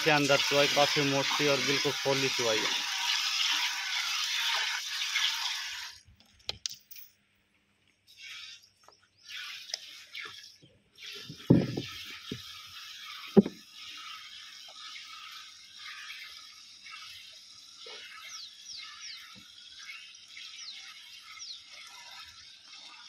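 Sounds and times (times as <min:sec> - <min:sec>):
thumps: 0:11.3 - 0:12.4, 0:13.4 - 0:13.6.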